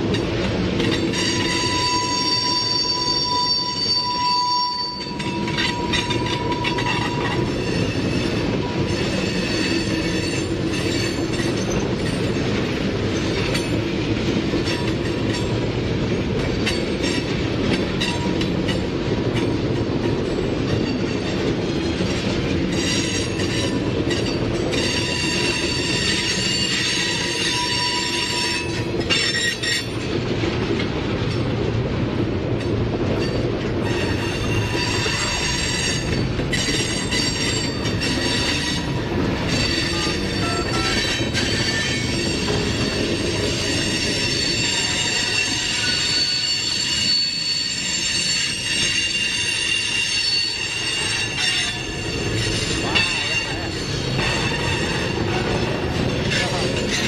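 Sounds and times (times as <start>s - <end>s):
train wheels rumbling on rail: 0.0s - 57.0s
high ringing wheel squeal: 0.9s - 11.9s, 22.7s - 30.0s, 33.9s - 57.0s.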